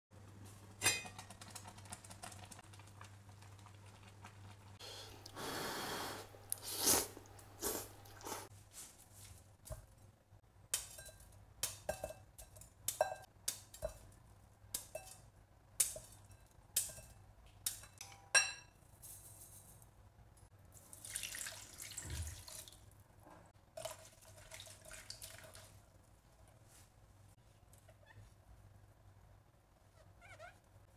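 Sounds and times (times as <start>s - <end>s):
water running into bowl: 20.8s - 22.8s, 23.8s - 25.8s.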